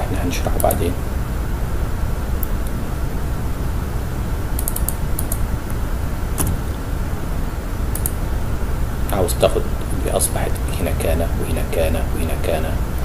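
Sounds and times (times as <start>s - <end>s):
steady low hum: 0.0s - 13.0s
keyboard and mouse clicks: 4.6s - 5.4s, 6.4s - 6.6s, 7.9s - 8.2s.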